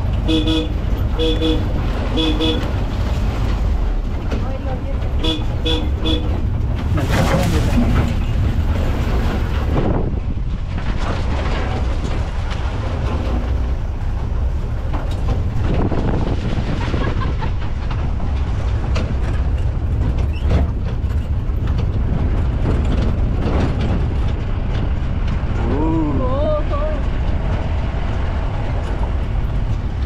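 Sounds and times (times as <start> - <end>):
vehicle body rattling: 0.0 - 25.7, 26.3 - 30.0
jeep engine rumble: 0.0 - 30.0.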